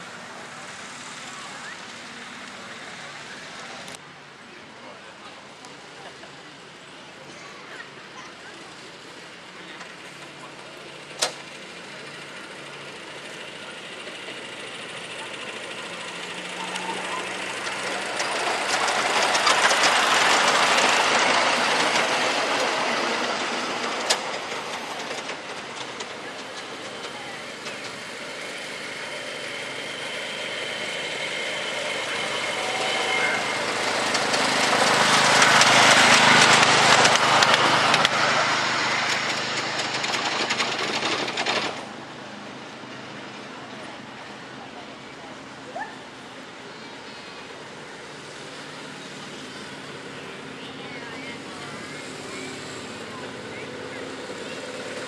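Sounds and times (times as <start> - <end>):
train wheels rumbling on rails: 7.4 - 55.0
thin high whine: 30.6 - 35.2.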